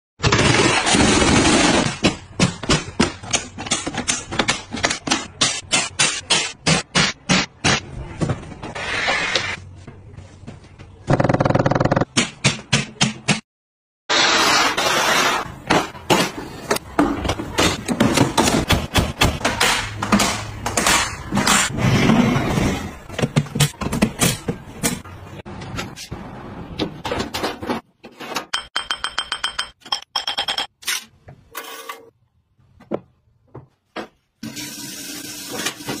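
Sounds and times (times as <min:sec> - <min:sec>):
running tap water: 0:34.4 - 0:36.0.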